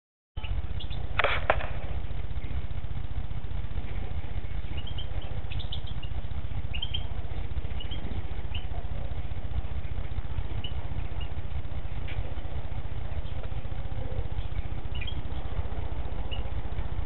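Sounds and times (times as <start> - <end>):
steady low hum: 0.4 - 17.0
high bird chirps: 4.1 - 8.9, 9.8 - 12.2, 13.1 - 16.6.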